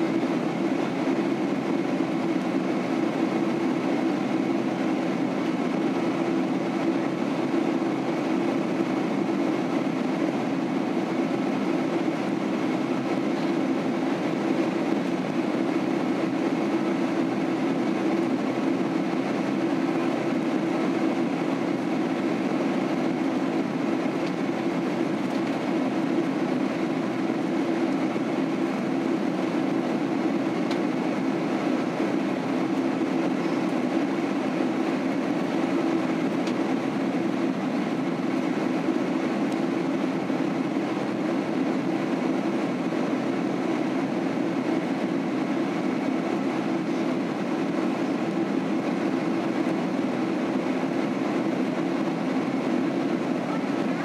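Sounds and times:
airplane cabin rumble: 0.0 - 54.0.

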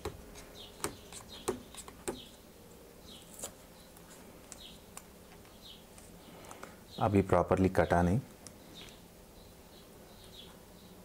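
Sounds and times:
small bird chirping: 0.4 - 2.4, 3.0 - 7.2, 8.5 - 11.0
fingers tapping cardboard box: 0.8 - 2.3.

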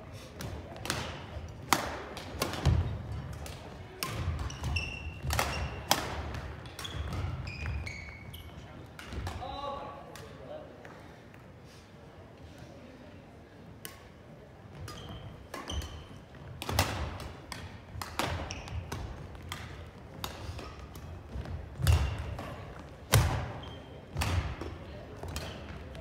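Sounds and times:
racket hitting shuttlecock: 0.4 - 7.9, 14.8 - 26.0
shoes squeaking: 4.3 - 8.8, 14.7 - 16.5, 18.2 - 19.3.

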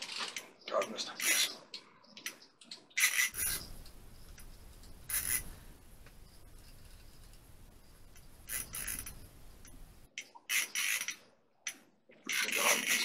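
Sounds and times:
hands rubbing fishing reel: 2.9 - 13.0.

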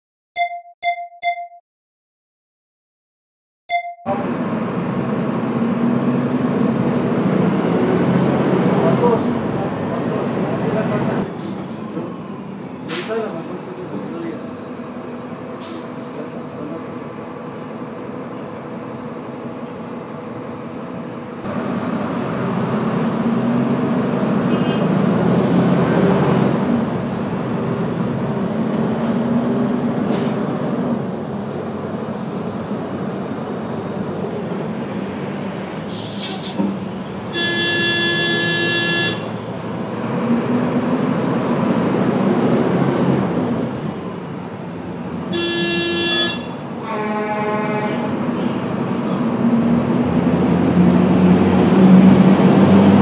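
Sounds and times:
street traffic noise: 4.0 - 53.0
bus engine revving: 4.1 - 53.0
vehicle horn blast: 37.3 - 39.4, 45.3 - 48.2.

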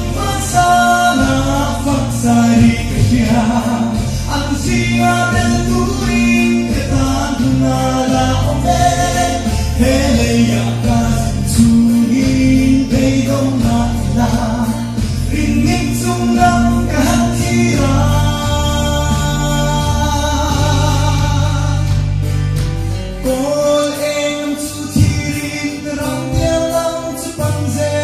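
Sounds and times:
man singing into a microphone: 0.0 - 22.2, 23.2 - 28.0
instrumental accompaniment with bass: 0.0 - 28.0.

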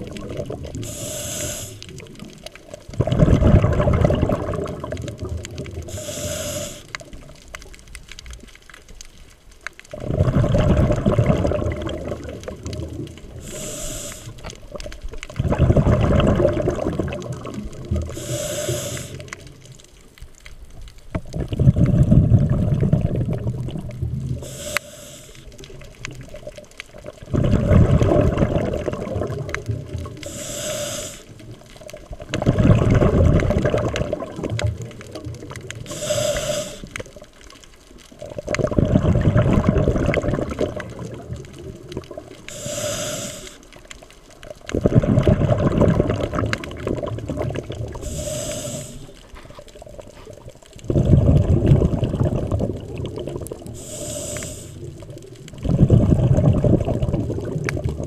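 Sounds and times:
exhaled bubbles rushing underwater: 0.0 - 8.4, 9.9 - 19.8, 21.1 - 58.0
diver inhaling through regulator: 0.8 - 2.0, 5.8 - 7.0, 13.3 - 14.5, 18.0 - 19.5, 24.4 - 25.7, 30.1 - 31.4, 35.8 - 37.0, 42.5 - 43.7, 47.9 - 49.6, 53.7 - 55.0.

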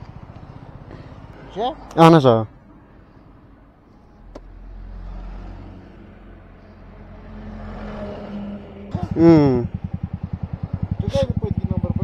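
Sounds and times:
vehicle engine running: 8.9 - 12.0.

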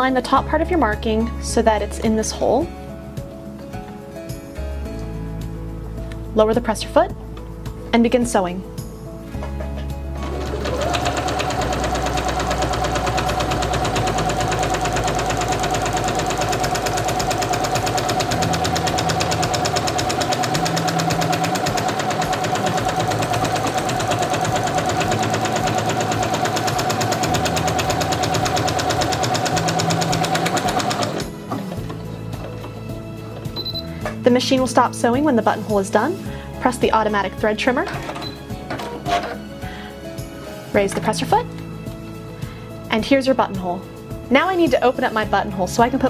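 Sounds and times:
sewing machine stitching: 10.2 - 33.8.

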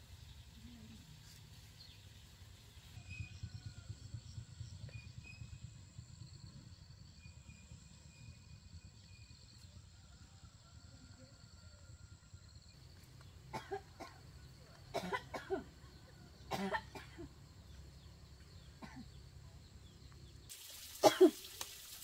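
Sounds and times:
faint steady background hum: 1.8 - 21.4
person coughing: 14.9 - 15.7, 16.5 - 17.3, 21.0 - 21.4.

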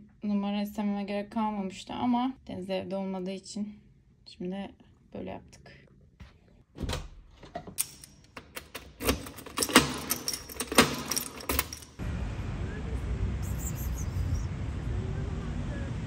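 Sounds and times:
key clicking in door lock: 7.8 - 12.0
keys jangling: 7.8 - 12.0
low outdoor rumble: 11.8 - 16.0.

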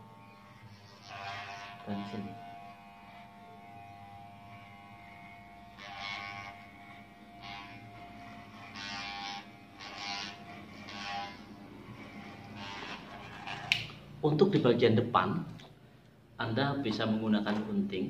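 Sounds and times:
electric hair clipper buzzing: 0.0 - 14.1
clipper blades cutting hair: 0.2 - 14.0.

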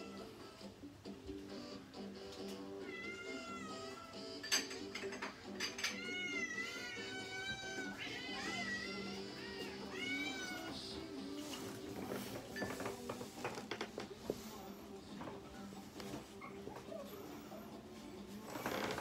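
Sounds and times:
cats meowing: 0.0 - 0.6, 2.7 - 4.4, 5.6 - 11.4.

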